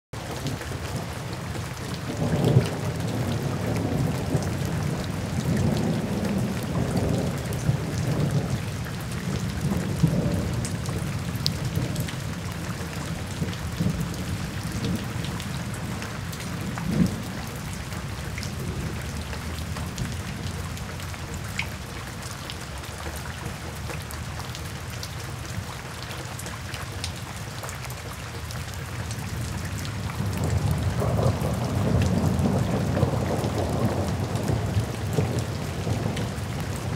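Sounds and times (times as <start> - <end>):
steady rain falling: 0.2 - 36.9
low thunder rolling: 30.1 - 36.9.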